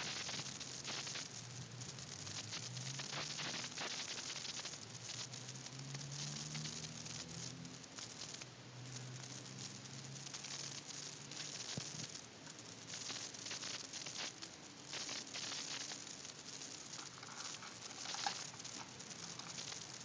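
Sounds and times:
cat crunching dry kibble: 16.6s - 20.0s.

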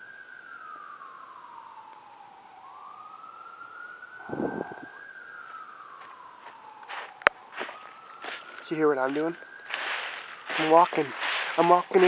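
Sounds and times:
police siren wailing: 0.0s - 12.0s.

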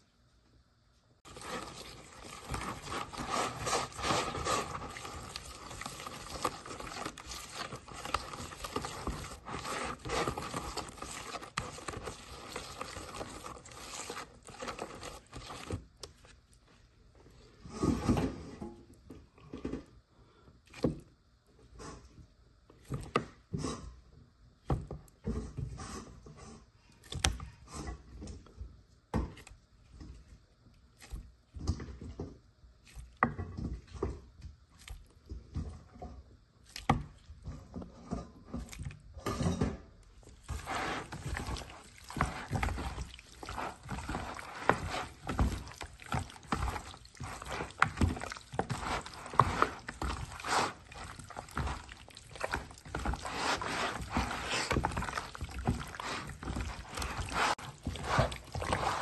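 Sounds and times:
hands squelching in wet marinade: 1.3s - 16.8s, 40.2s - 59.0s.

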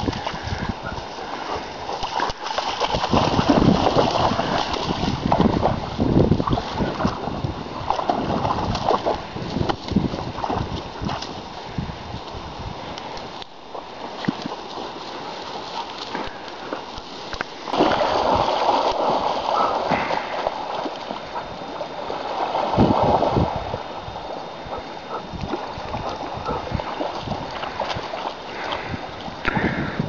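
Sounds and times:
dogs splashing through water: 0.0s - 30.0s
river current rushing: 13.0s - 30.0s.

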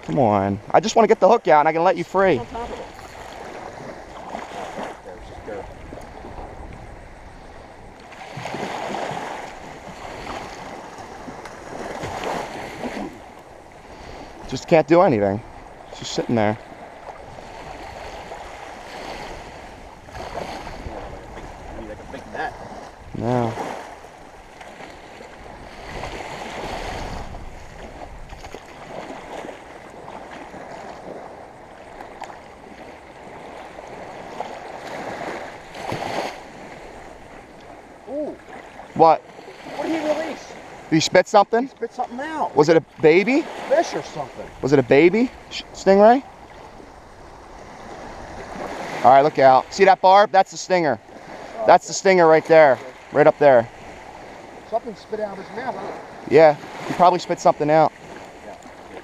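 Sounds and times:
small waves washing: 0.0s - 59.0s
wind rumbling on microphone: 2.3s - 14.8s, 15.4s - 40.9s, 42.1s - 49.1s
water splash: 8.0s - 13.4s, 22.1s - 37.0s.

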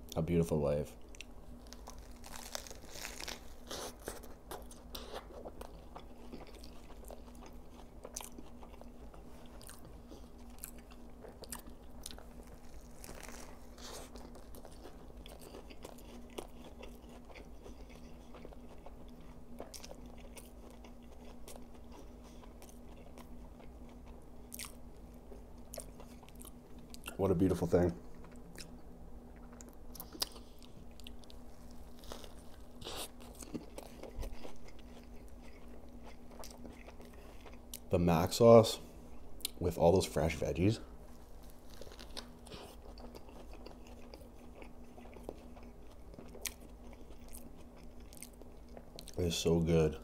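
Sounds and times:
faint steady hum: 0.0s - 50.0s
biting and chewing burger: 1.0s - 38.4s, 40.9s - 49.3s
crisp lettuce crunches: 1.6s - 9.9s, 11.4s - 18.5s, 29.5s - 37.1s, 41.1s - 48.4s.

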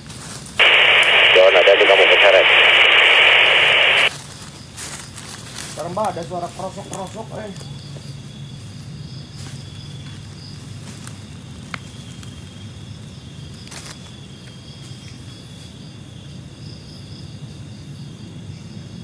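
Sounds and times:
faint clicks: 0.6s - 4.1s
low steady hum: 0.6s - 4.1s
insects chirring: 0.6s - 18.7s.

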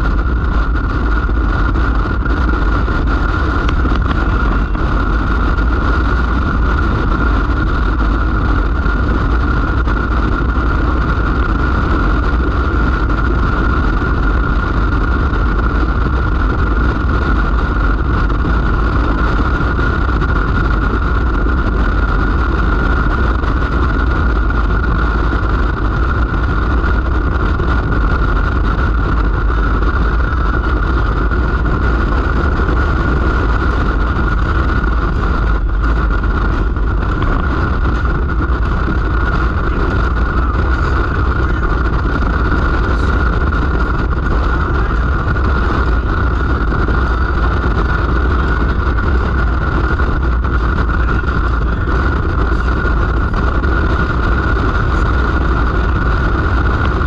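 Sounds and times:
vehicle driving on road: 0.0s - 57.0s.

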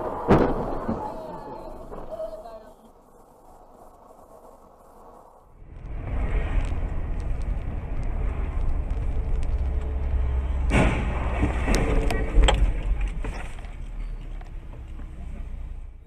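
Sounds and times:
car collision crash: 0.0s - 2.2s, 10.4s - 13.6s
car road and engine rumble: 3.6s - 16.0s.

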